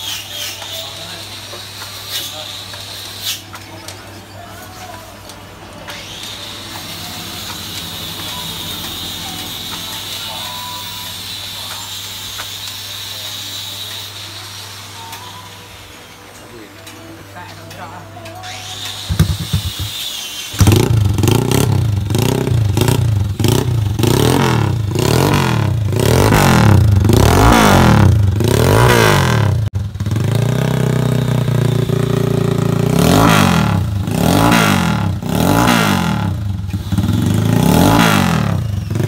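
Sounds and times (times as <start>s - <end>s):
motorcycle engine revving and idling: 4.7s - 14.9s, 18.4s - 39.0s.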